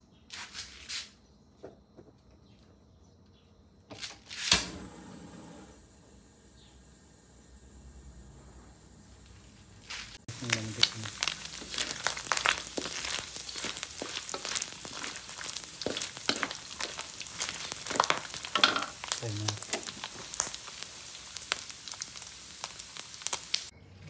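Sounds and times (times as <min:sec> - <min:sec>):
fat sizzling in hot oil: 0:09.8 - 0:23.7
wooden spatula stirring: 0:10.3 - 0:22.3.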